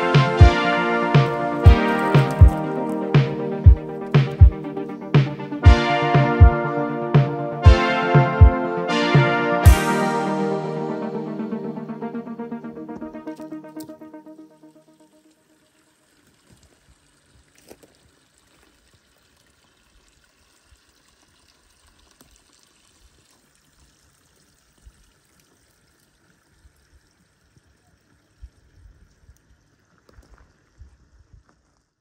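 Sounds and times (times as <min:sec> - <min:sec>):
trickle of running water: 0:01.4 - 0:03.2, 0:14.6 - 0:32.0.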